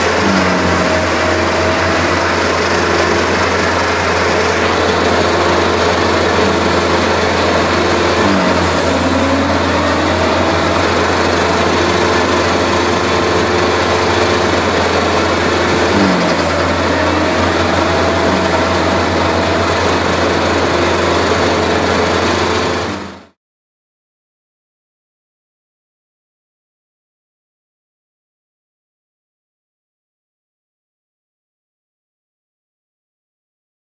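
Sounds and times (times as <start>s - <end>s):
bale spreader shredding hay: 0.0s - 23.3s
engine running under load: 0.0s - 23.4s.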